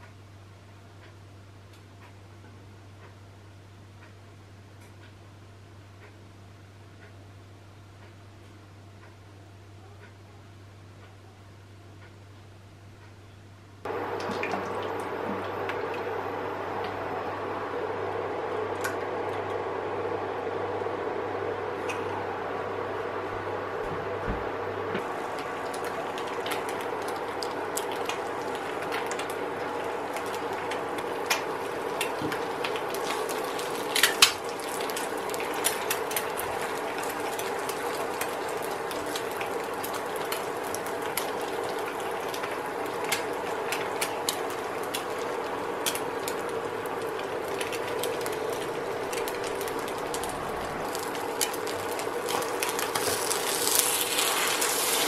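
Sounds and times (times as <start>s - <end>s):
induction cooker hum: 0.0s - 55.0s
egg sizzling in oil: 25.0s - 55.0s
oil popping and crackling: 25.0s - 55.0s.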